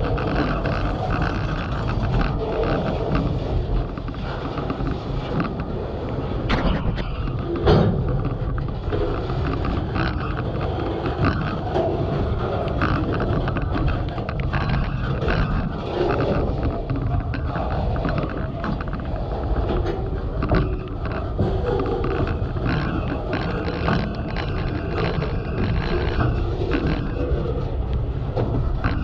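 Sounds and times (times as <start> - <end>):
rain distortion on microphone: 0.0 - 29.0.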